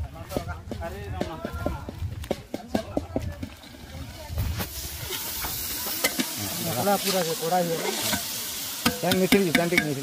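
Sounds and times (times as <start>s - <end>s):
curry sizzling in a pot: 3.4s - 10.0s.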